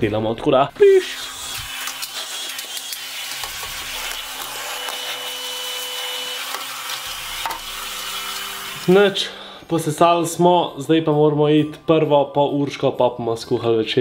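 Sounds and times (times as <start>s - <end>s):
vacuum cleaner running: 1.0s - 9.2s.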